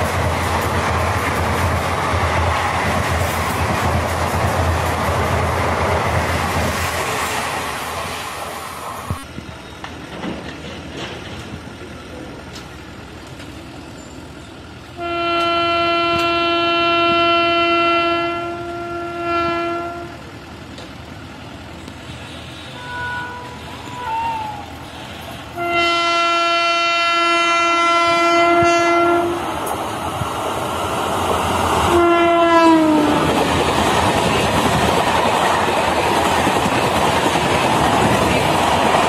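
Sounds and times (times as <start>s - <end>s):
train coaches clattering past: 0.0s - 39.0s
locomotive horn blast: 15.0s - 20.2s, 22.7s - 24.6s, 25.6s - 29.6s, 31.9s - 33.3s.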